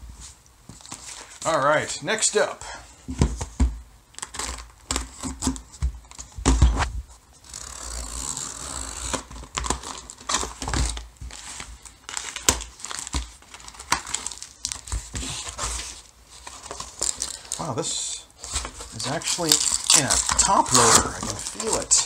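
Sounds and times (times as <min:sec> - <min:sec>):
cardboard crinkling and rustling: 0:00.7 - 0:01.6, 0:08.9 - 0:17.8, 0:18.4 - 0:22.0
packing tape tearing: 0:04.2 - 0:05.6, 0:07.4 - 0:17.6, 0:18.4 - 0:22.0.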